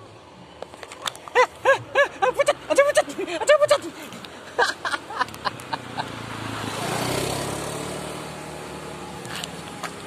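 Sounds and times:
motorcycle passing: 0:04.8 - 0:10.0.

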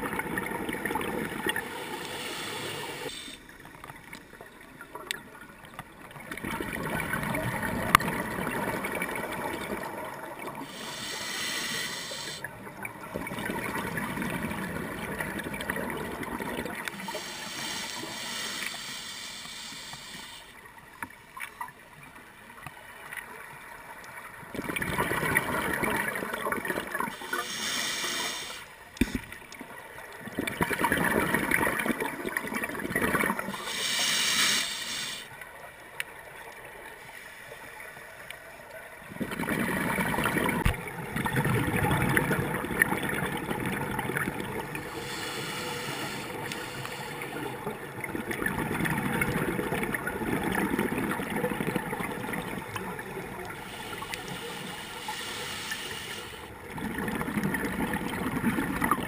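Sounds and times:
exhaled bubbles rushing underwater: 0:05.3 - 0:11.1, 0:12.4 - 0:18.7, 0:24.3 - 0:27.5, 0:29.7 - 0:33.8, 0:39.0 - 0:55.5, 0:56.5 - 0:59.0.

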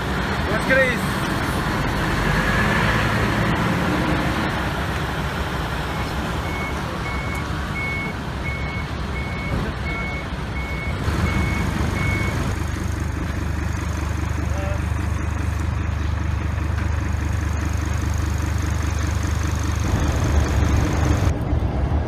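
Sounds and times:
low rumble of engines and traffic: 0:00.0 - 0:22.0
reversing alarm beeping: 0:06.0 - 0:12.4.

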